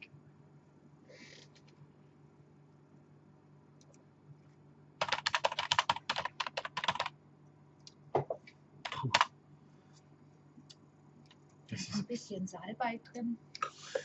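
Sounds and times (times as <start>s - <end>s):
fast keyboard typing: 5.0s - 7.2s, 8.8s - 9.3s.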